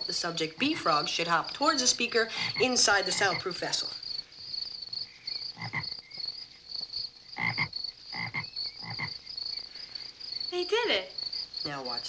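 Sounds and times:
crickets chirping: 0.0s - 12.0s
frog croaking: 1.8s - 9.7s.

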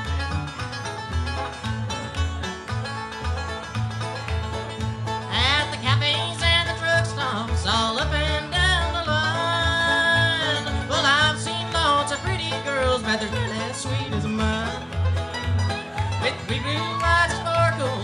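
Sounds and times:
bluegrass band playing: 0.0s - 18.0s
man singing lead vocal: 5.3s - 14.9s, 16.2s - 18.0s.

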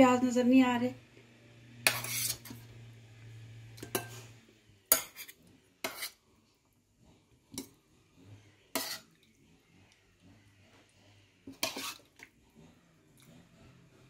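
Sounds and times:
metal spoon scraping ceramic bowl: 1.8s - 2.8s, 3.8s - 6.2s, 8.6s - 9.3s, 11.4s - 13.4s.

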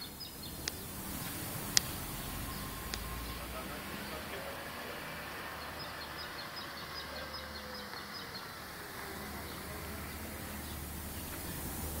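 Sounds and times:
small bird chirping rapidly: 0.0s - 4.2s.

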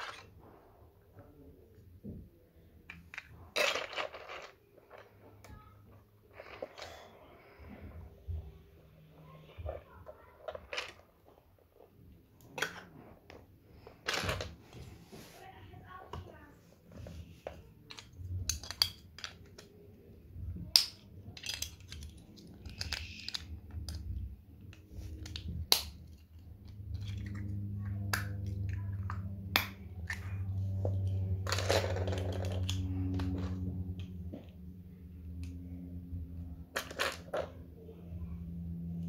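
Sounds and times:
low steady hum: 0.0s - 39.0s
plastic toy parts clicking: 17.9s - 19.7s, 20.7s - 24.2s, 25.2s - 26.3s.

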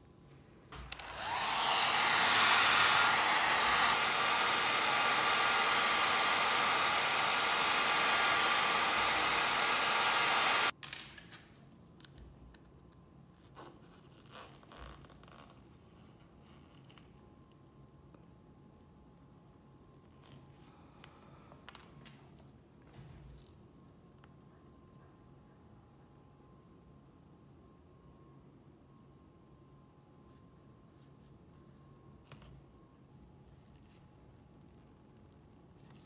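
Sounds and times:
hot-air blower hissing: 0.8s - 10.7s.

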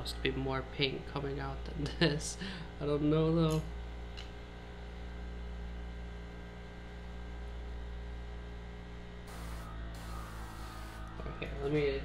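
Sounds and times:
air hissing from airbrush: 9.3s - 11.1s
airbrush compressor humming: 9.3s - 11.2s.

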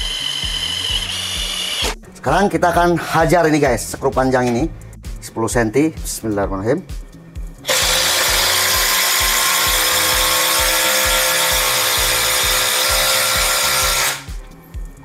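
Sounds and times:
impact wrench driving screw into wood: 0.0s - 2.0s, 7.6s - 14.3s.

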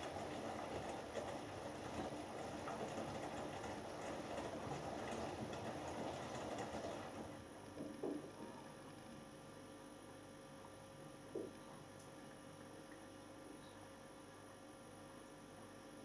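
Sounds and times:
washing machine drum tumbling: 0.0s - 7.4s.

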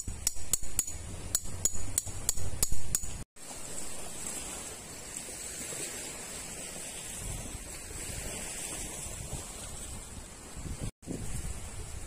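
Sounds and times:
hammer striking metal tent peg: 0.0s - 3.2s.

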